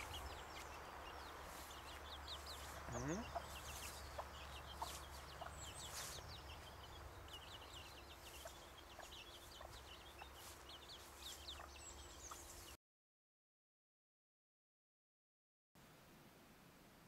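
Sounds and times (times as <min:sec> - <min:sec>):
soft chicken clucks: 0:00.0 - 0:12.5
chicks peeping and chirping: 0:00.0 - 0:12.8.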